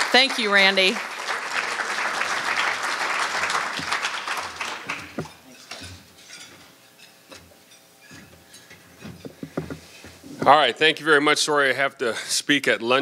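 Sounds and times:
audience applause: 0:00.0 - 0:05.4.

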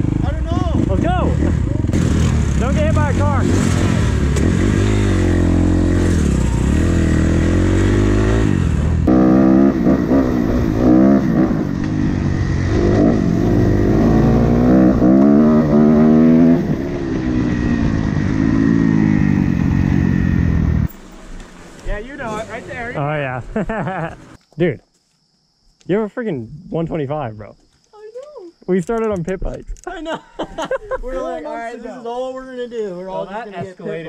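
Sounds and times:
dirt bike engines revving: 0:00.0 - 0:24.4.

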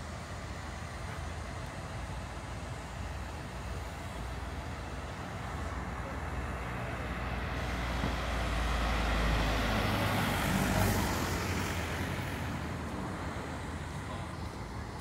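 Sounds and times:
vehicle driving past: 0:06.6 - 0:12.6.

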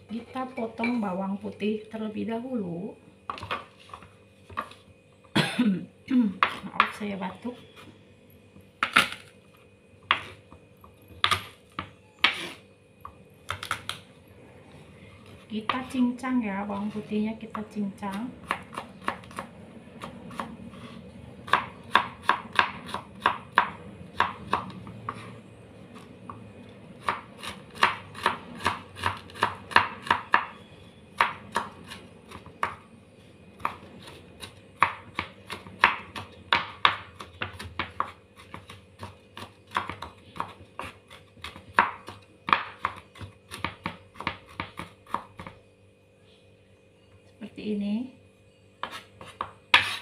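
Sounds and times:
knife chopping on wooden board: 0:10.1 - 0:12.6, 0:13.5 - 0:14.0, 0:16.8 - 0:25.4, 0:27.0 - 0:30.6, 0:31.2 - 0:32.8, 0:33.6 - 0:45.6, 0:48.8 - 0:50.0.

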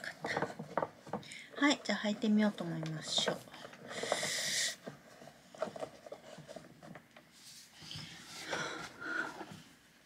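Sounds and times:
soft rustling: 0:00.0 - 0:10.0.

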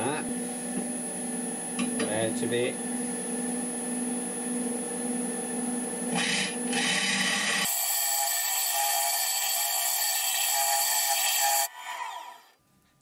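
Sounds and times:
wood lathe humming: 0:03.7 - 0:11.7.

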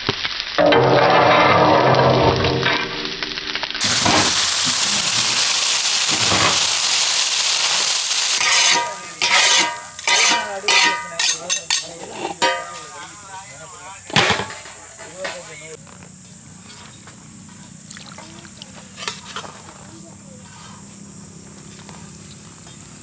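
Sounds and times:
squid sizzling in oil: 0:00.0 - 0:00.7, 0:02.0 - 0:15.0
metal spatula scraping griddle: 0:00.6 - 0:03.0, 0:06.1 - 0:06.7, 0:07.8 - 0:13.2, 0:14.1 - 0:15.6, 0:18.9 - 0:19.7.

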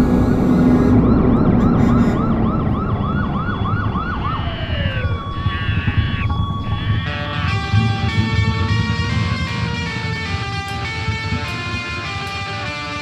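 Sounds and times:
loud cartoon rumbling: 0:00.0 - 0:12.6
warbling siren-like tone: 0:00.0 - 0:12.8
wavering high tones: 0:04.2 - 0:13.0.

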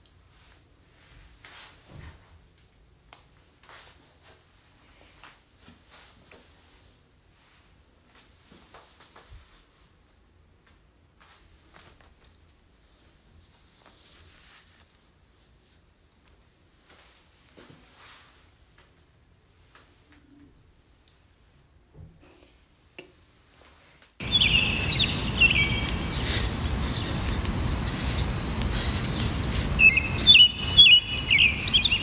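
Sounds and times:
faint rustling of clothing: 0:00.0 - 0:21.7.

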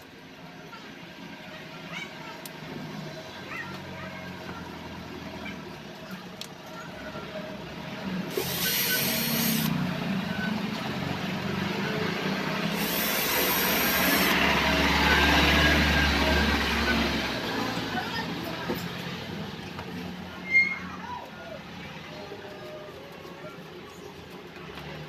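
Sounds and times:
cordless drill boring into wood: 0:08.3 - 0:09.8, 0:12.7 - 0:14.5.

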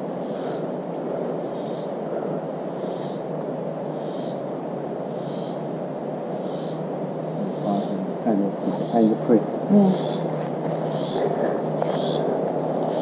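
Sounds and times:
forest rushing noise: 0:00.0 - 0:13.0
raspy animal call: 0:07.4 - 0:13.0.

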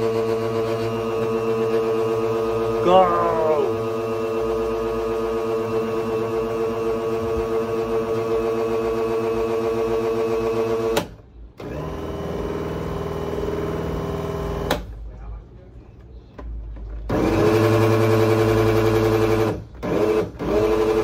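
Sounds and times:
blender motor whining: 0:19.8 - 0:21.0.

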